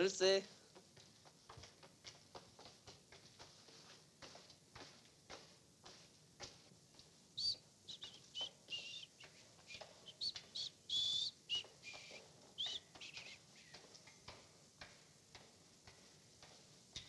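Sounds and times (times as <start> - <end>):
footsteps on pavement: 0.2 - 17.0.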